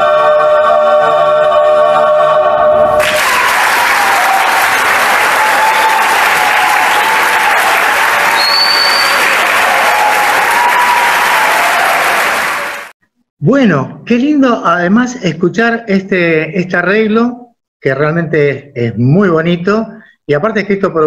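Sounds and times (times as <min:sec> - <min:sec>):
audience applauding: 0:03.0 - 0:13.0.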